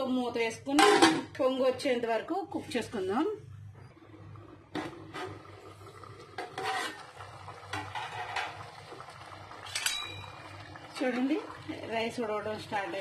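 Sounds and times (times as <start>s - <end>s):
metal pot lid clinking: 7.7s - 8.6s, 9.6s - 10.5s
ringing metal clank: 9.8s - 10.4s.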